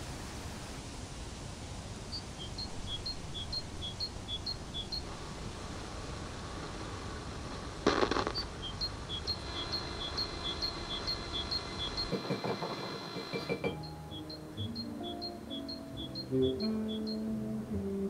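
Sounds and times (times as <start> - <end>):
low hiss: 0.0 - 18.0
radio static burst: 2.6 - 13.7
thin high tone: 8.2 - 18.0
bird two-note chirp: 13.2 - 17.6.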